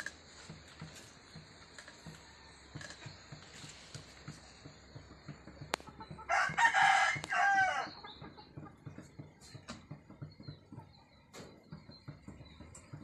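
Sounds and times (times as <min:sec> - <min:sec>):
rooster crowing: 0:06.3 - 0:08.0.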